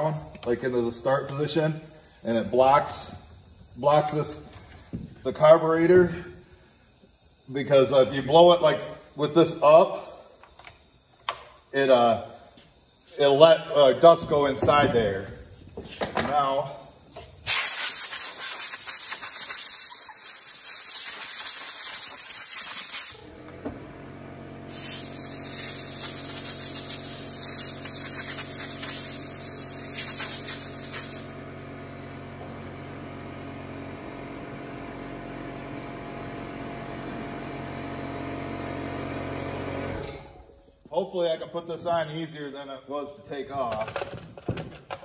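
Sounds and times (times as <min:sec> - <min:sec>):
steady machine hum: 0:00.0 - 0:17.5
compressed air blasts: 0:00.0 - 0:23.2, 0:24.6 - 0:31.4.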